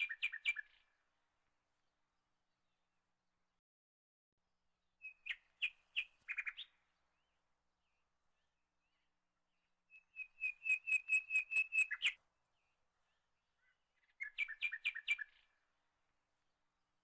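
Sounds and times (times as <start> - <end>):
small bird chirping: 0.0 - 0.9, 5.0 - 15.6.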